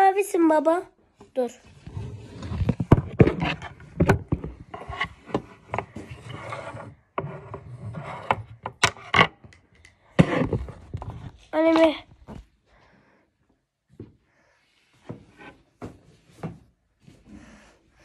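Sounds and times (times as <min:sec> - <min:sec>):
rustling and rubbing: 0:01.4 - 0:08.6.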